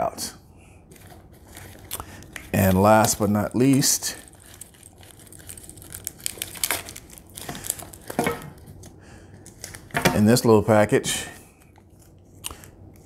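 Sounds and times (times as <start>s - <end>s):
package crinkling and rustling: 0.9s - 10.3s.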